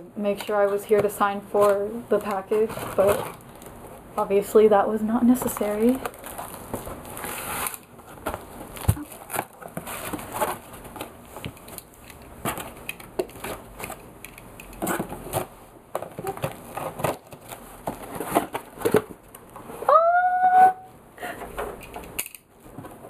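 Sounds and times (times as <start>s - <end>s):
cardboard flaps scraping and rustling: 1.5s - 3.4s, 5.7s - 11.8s, 14.8s - 19.8s
packing material crackling: 5.6s - 14.1s.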